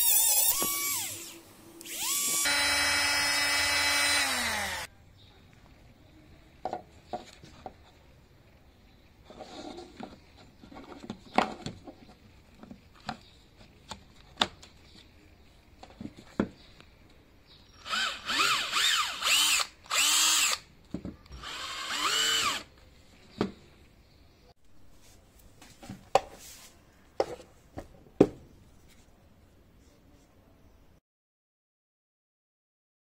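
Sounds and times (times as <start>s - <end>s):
cordless drill motor whirring: 0.0s - 4.9s, 17.8s - 20.7s, 21.3s - 22.7s.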